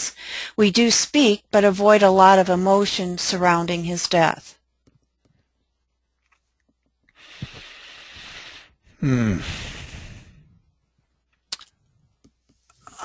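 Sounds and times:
man breathing in: 0:07.2 - 0:10.6
man sighing: 0:09.0 - 0:10.2.

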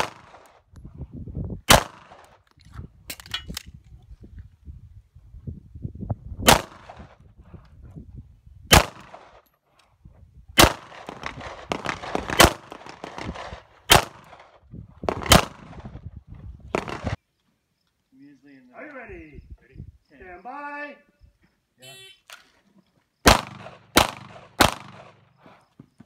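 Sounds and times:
handgun shots: 0:08.7 - 0:09.2, 0:23.3 - 0:25.2.

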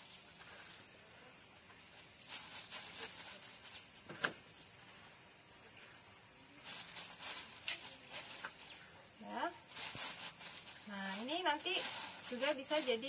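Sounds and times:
faint hiss: 0:00.0 - 0:13.0
soil scooped by hand: 0:01.8 - 0:04.4, 0:05.8 - 0:09.0, 0:09.6 - 0:13.0
plastic bag rustling: 0:01.9 - 0:04.2, 0:06.5 - 0:13.0.

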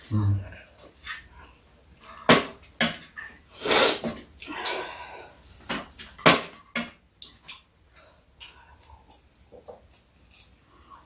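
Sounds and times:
breath-like hiss: 0:03.6 - 0:04.1.

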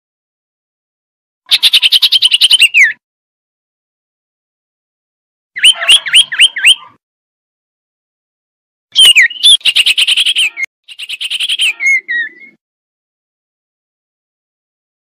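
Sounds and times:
bird swooping whistled notes: 0:05.6 - 0:07.0
bird chattering trills: 0:09.0 - 0:12.6.

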